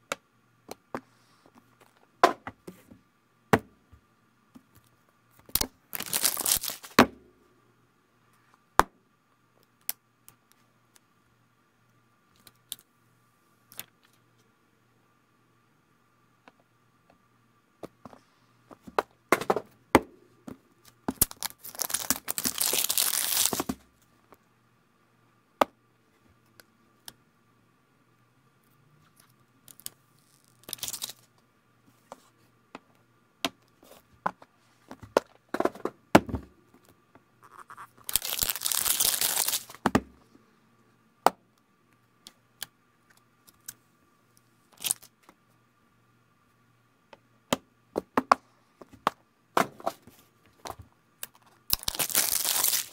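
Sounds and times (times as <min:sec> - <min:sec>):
plastic film tearing: 0:05.9 - 0:07.0, 0:21.2 - 0:23.7, 0:29.7 - 0:31.2, 0:38.0 - 0:39.8, 0:44.8 - 0:45.1, 0:51.7 - 0:52.9.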